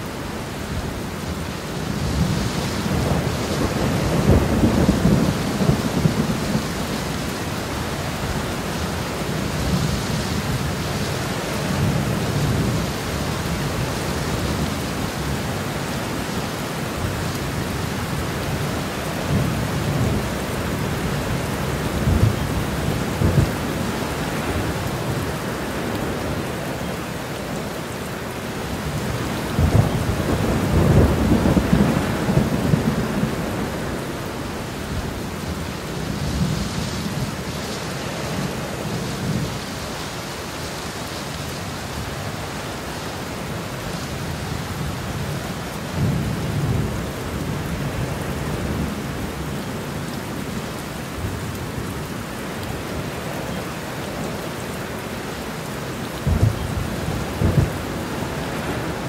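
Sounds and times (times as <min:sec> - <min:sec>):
steady rain: 0:00.0 - 0:59.0
thunder rumbling: 0:02.0 - 0:09.8, 0:28.9 - 0:37.5, 0:56.1 - 0:59.0.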